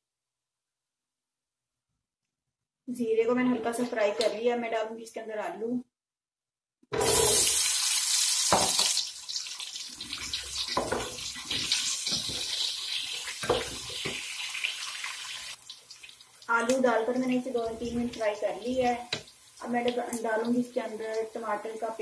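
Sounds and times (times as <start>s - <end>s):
potatoes sizzling in hot oil: 7.0s - 22.0s.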